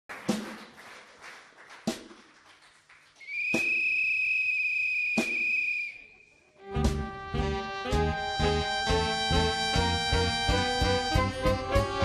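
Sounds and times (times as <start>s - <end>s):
high steady whistle tone: 3.2s - 6.6s.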